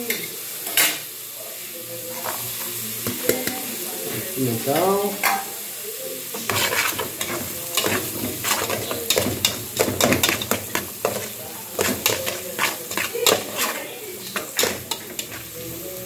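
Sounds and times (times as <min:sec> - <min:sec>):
oil sizzling: 0:00.0 - 0:16.0
spoon scraping aluminium pot: 0:06.5 - 0:15.5.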